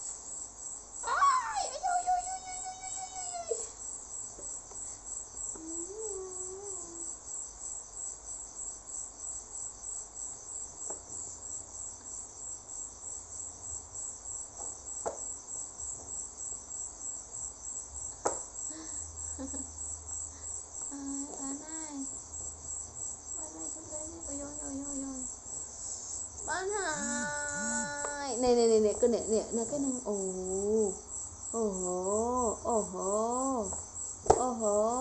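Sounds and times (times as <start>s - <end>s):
baby gliding vocal sounds: 5.6s - 7.2s, 26.5s - 28.4s
pulsing high-pitched chirping: 26.4s - 28.4s.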